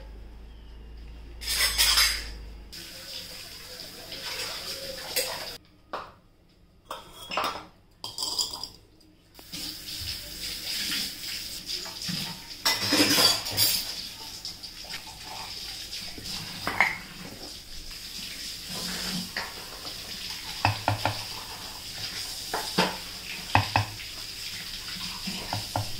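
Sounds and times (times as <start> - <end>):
clay pot knocking on steel vessel: 23.5 - 24.0.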